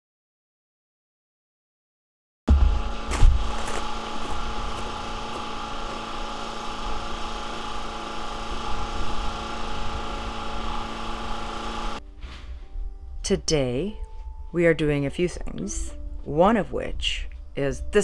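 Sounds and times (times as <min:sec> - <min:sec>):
steady mechanical hum: 0:02.5 - 0:12.0.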